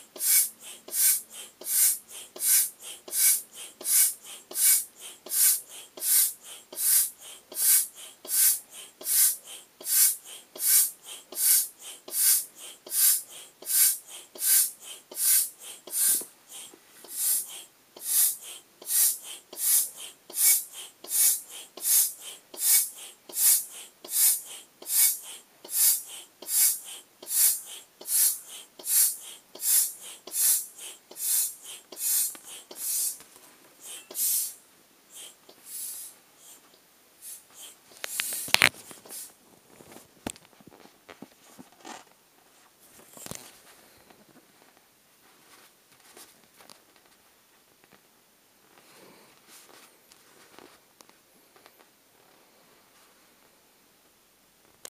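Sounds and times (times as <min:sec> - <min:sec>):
foot pump hissing air: 0:00.0 - 0:33.2, 0:33.8 - 0:39.4.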